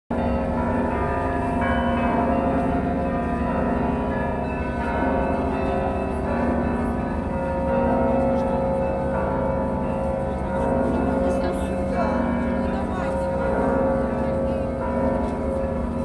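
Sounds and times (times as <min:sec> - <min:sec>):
church bells ringing: 0:00.1 - 0:16.0.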